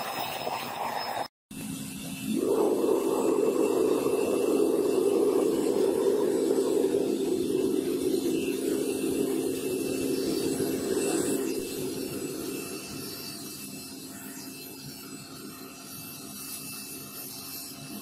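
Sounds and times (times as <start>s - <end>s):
low hum: 0.2s - 14.4s
gas burner rushing: 2.0s - 13.6s.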